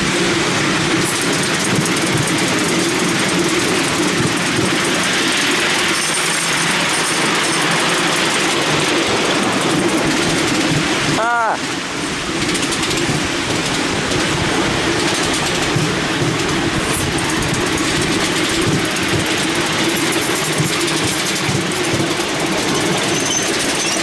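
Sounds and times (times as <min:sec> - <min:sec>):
miniature train rumbling and clattering: 0:00.0 - 0:24.0.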